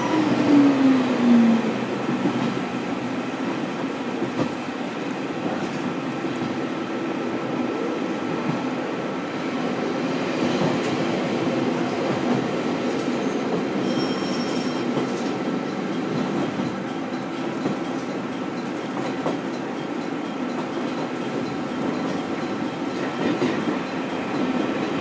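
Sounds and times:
rail noise: 0.0s - 25.0s.

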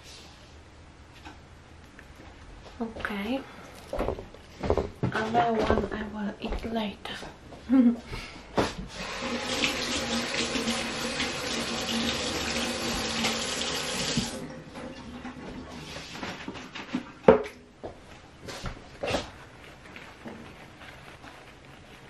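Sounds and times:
tap water running into sink: 8.9s - 15.4s.

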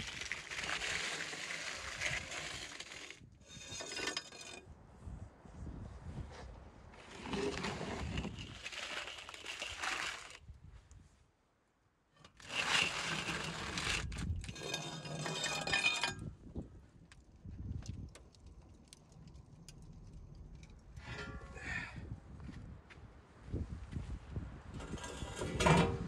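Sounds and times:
metal tray scraping on brick: 0.1s - 4.6s, 7.0s - 10.4s, 12.2s - 16.3s, 21.0s - 21.9s, 24.8s - 26.0s.

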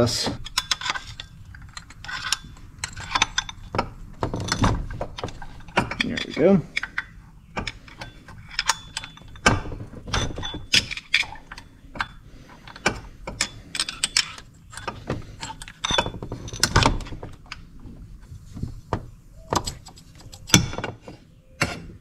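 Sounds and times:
tools and metal parts clinking: 0.4s - 22.0s
metallic rings: 5.3s - 12.2s.

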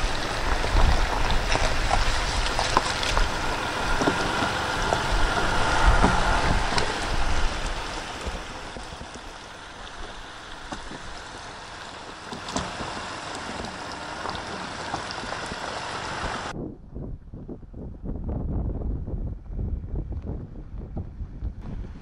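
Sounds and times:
water sloshing around tyres: 0.0s - 16.6s
vehicle engine low: 0.0s - 16.9s, 17.5s - 22.0s.

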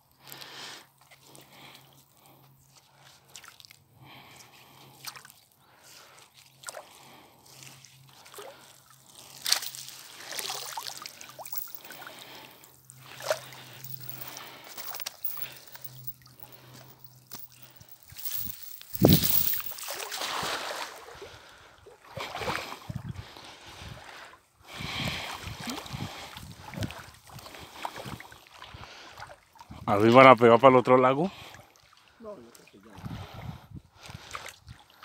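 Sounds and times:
water sloshing and splashing: 4.8s - 23.0s.

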